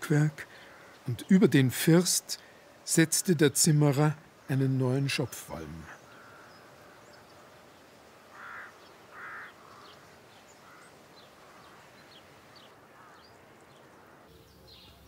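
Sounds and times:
small birds chirping: 0.0 - 15.0
crow cawing: 0.4 - 1.1, 6.0 - 7.5, 8.2 - 14.3.

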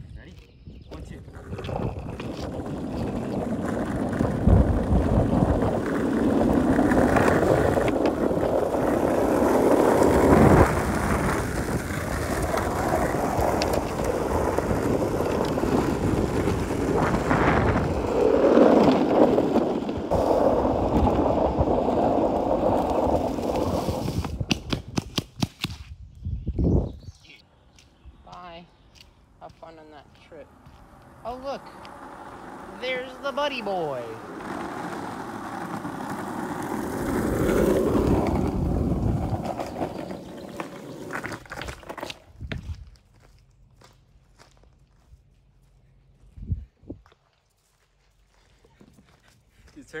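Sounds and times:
skateboard wheels rolling on asphalt: 0.4 - 27.0, 29.2 - 50.0.

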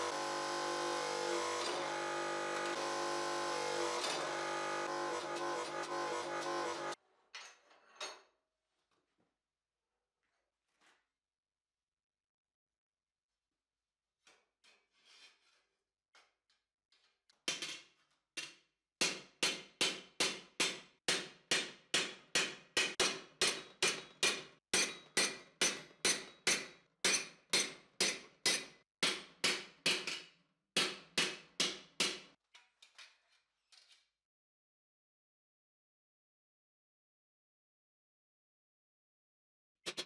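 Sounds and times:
hammer striking steel plate: 18.4 - 32.4.

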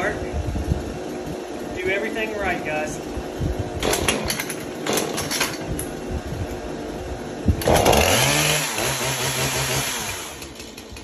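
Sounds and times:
chainsaw engine running: 3.8 - 5.6, 6.6 - 11.0
starter cord pulls: 3.8 - 5.9, 7.6 - 8.9.

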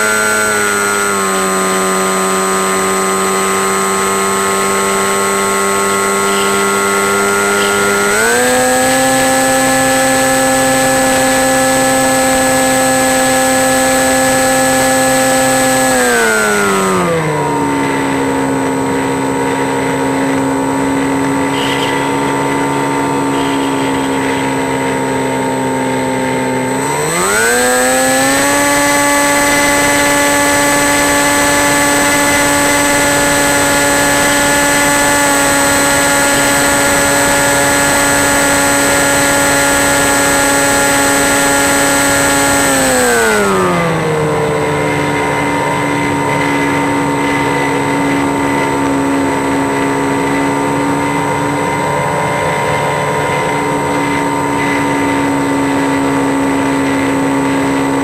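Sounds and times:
engine running: 0.0 - 58.0
thin high whine: 17.4 - 42.2.

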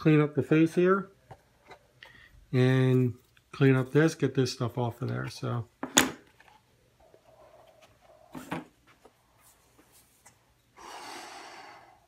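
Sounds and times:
person blowing a puff of air: 10.8 - 12.0.

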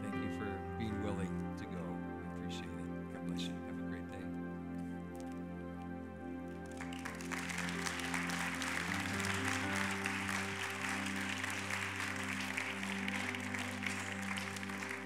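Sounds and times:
crowd applauding: 6.6 - 15.0.

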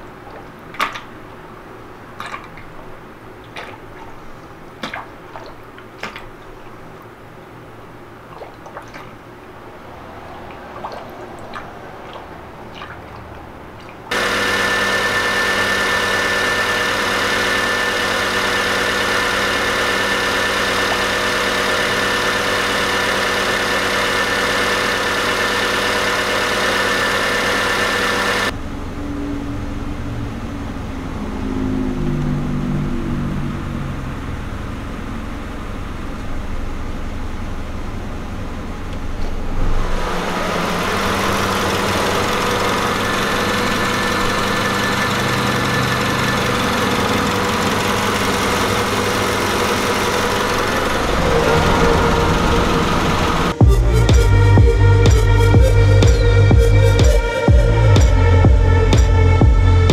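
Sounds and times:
coolant trickling through funnel: 8.2 - 27.2
car engine running: 14.1 - 29.0, 30.3 - 59.9.

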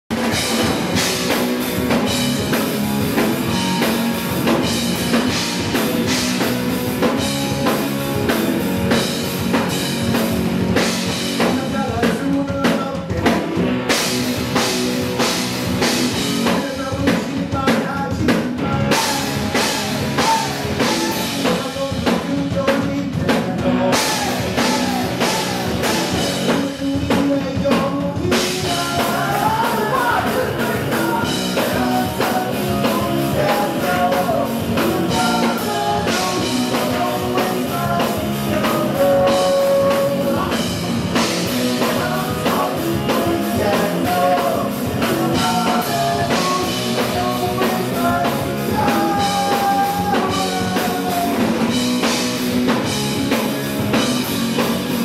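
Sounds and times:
bass guitar: 0.0 - 55.0
drum kit: 0.0 - 55.0
electric guitar: 0.1 - 55.0.

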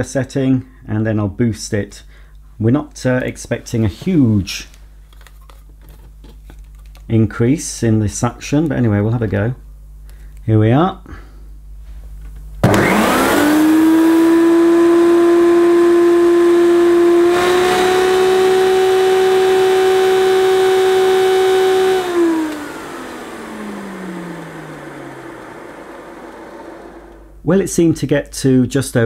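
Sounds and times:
vacuum cleaner motor whining: 12.6 - 27.4.

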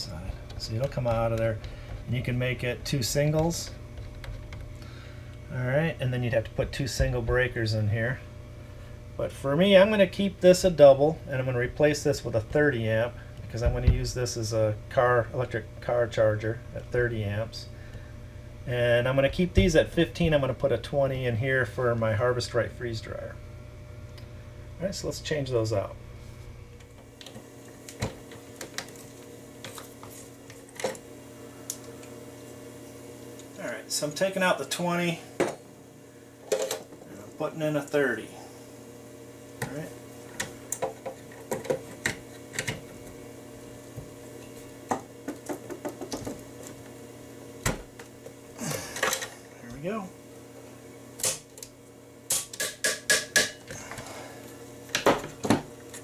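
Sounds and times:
hands clicking circuit breakers: 40.3 - 43.2, 51.2 - 51.7, 52.3 - 53.7
circuit breaker clicks: 51.2 - 53.6.

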